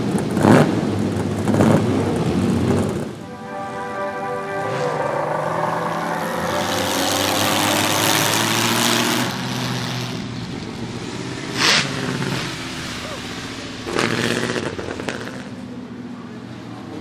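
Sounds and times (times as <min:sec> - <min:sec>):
race car engine driving past: 0:02.4 - 0:17.0
sharp burst of noise: 0:03.2 - 0:15.7.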